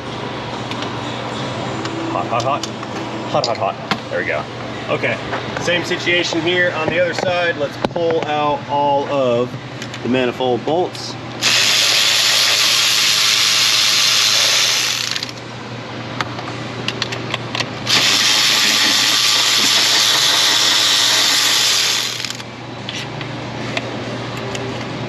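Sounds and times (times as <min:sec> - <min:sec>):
electric ratchet running: 0:11.4 - 0:15.4, 0:17.8 - 0:22.5.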